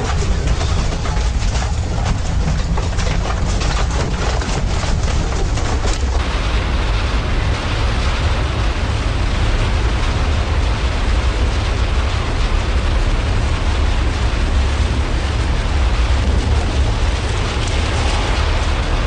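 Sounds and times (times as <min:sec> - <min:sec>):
building rattling and clattering: 0:00.0 - 0:08.6, 0:15.2 - 0:19.0
loud low rumble: 0:00.0 - 0:19.0.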